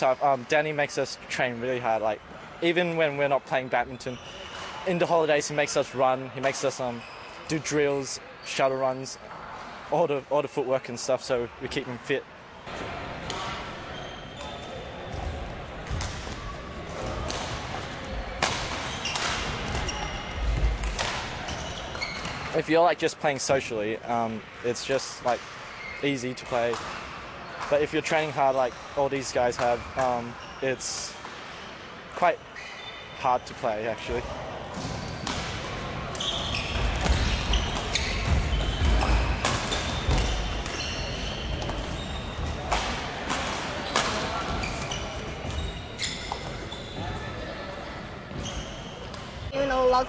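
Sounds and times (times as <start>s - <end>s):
background chatter: 0.0s - 50.0s
shoes squeaking on court floor: 3.8s - 4.9s, 6.5s - 7.5s, 12.7s - 22.6s, 25.3s - 31.8s, 32.5s - 50.0s.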